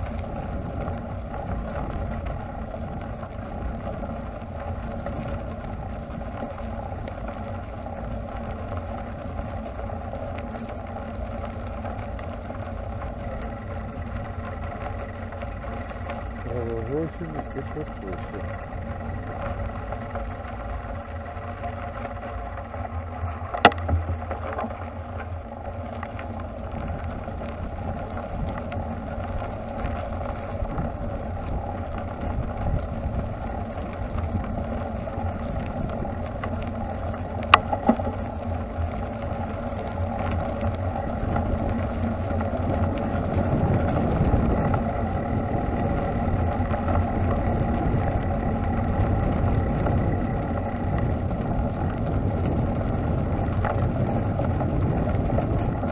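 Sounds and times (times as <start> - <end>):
bicycle tyres rolling on path: 0.0 - 55.9
wind on microphone: 26.7 - 38.2, 40.7 - 55.9.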